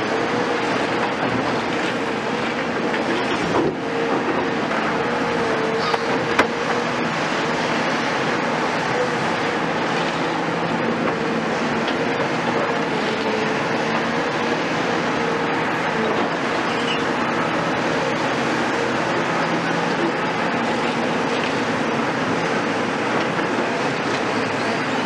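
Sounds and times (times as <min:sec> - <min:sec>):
diesel engines running: 0:00.0 - 0:25.0.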